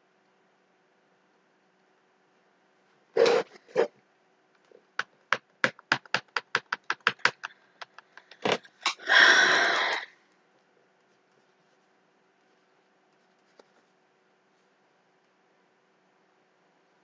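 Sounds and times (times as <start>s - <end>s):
pen tapping on graphics tablet: 5.0s - 8.5s.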